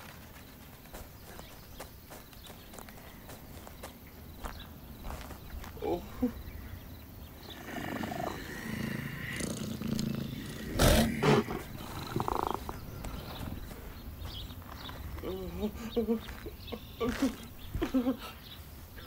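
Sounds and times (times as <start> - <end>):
cheetah growling and purring: 7.4 - 13.6.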